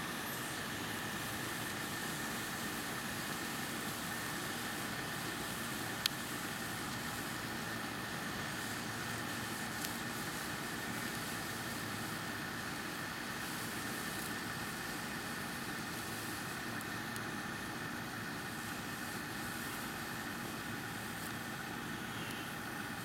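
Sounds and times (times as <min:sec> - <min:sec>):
constant low hum and hiss: 0:00.0 - 0:23.0
faint clicks: 0:22.1 - 0:22.6.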